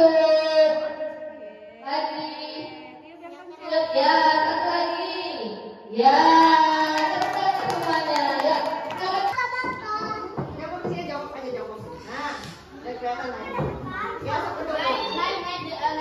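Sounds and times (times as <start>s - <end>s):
hand-clapping: 6.9s - 10.1s.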